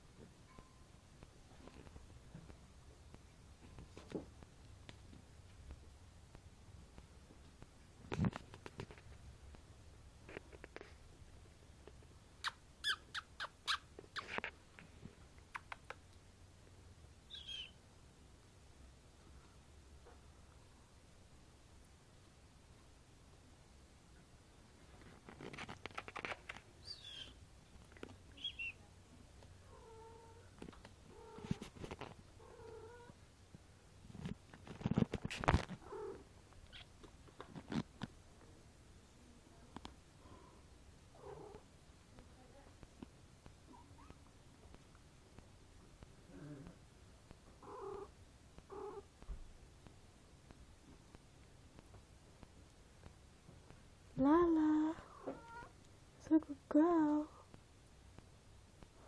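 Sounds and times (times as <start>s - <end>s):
knocks and rubbing on microphone: 8.0s - 9.3s, 30.6s - 32.2s, 34.1s - 35.8s
kitten chirping mew: 12.4s - 14.4s, 17.3s - 17.8s, 26.8s - 27.4s, 47.6s - 48.1s
cat purring: 29.6s - 33.2s, 34.1s - 37.8s, 40.2s - 42.9s, 43.6s - 49.2s.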